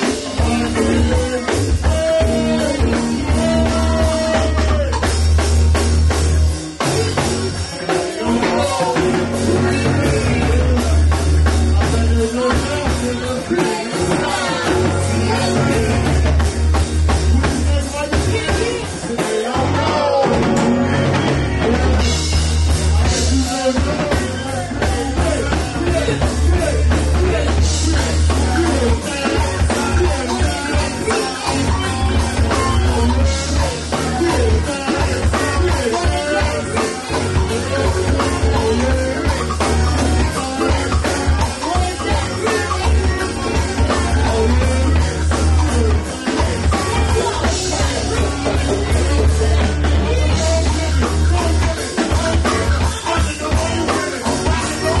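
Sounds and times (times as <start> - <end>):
voices singing into microphones: 0.0 - 5.5, 6.8 - 55.0
drum kit: 0.0 - 55.0
guitar: 0.0 - 55.0.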